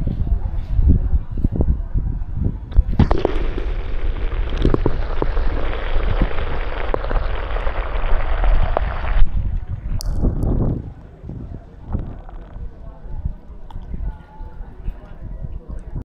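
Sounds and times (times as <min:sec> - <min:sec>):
underwater hiss with crackles: 0:02.8 - 0:10.6.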